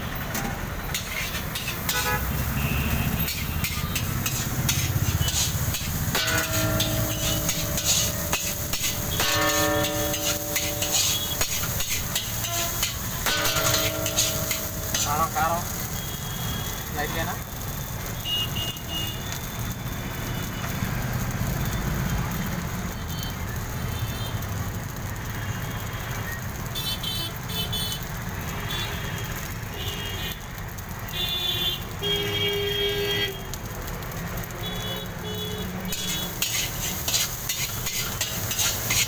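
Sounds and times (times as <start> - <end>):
low rumble of cooking stall: 0.0 - 39.0
metal spatula scraping a wok: 0.9 - 15.9, 35.9 - 39.0.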